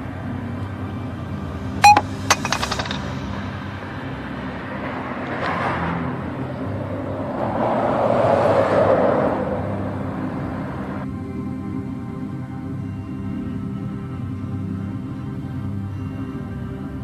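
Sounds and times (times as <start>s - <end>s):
street traffic: 0.0s - 17.0s
vehicle passing: 3.0s - 11.1s.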